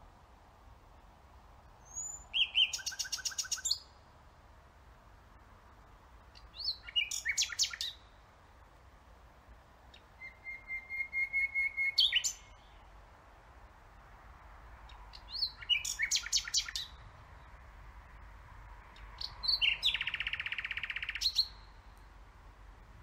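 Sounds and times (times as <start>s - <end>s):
nightingale singing: 1.8s - 4.0s, 6.3s - 8.3s, 9.9s - 12.9s, 14.8s - 17.6s, 18.9s - 22.2s.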